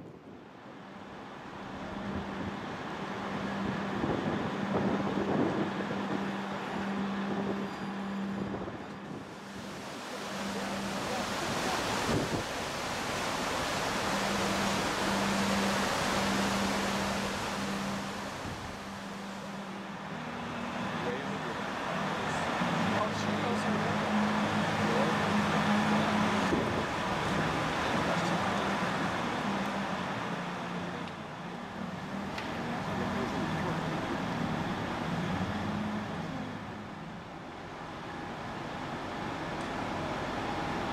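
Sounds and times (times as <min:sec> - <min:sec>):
broad rushing noise: 0:00.0 - 0:40.9
ship machinery hum: 0:00.0 - 0:40.9
wind noise on microphone: 0:01.7 - 0:19.8, 0:25.2 - 0:30.3.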